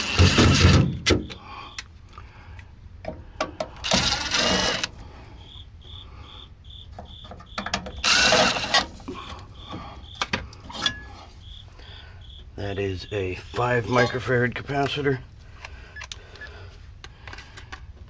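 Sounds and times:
cordless drill removing screws: 0.0 - 1.2, 3.8 - 4.9, 7.9 - 9.0.

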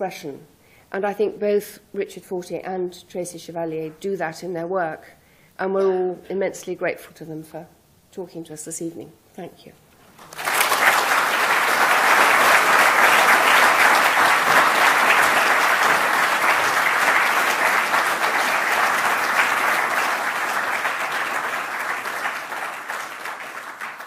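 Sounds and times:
large audience applauding: 10.2 - 24.0.

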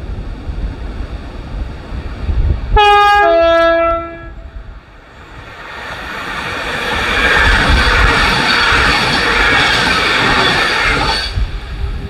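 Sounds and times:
wind rumbling on microphone: 0.0 - 12.0
train two-tone horn: 2.8 - 4.6.

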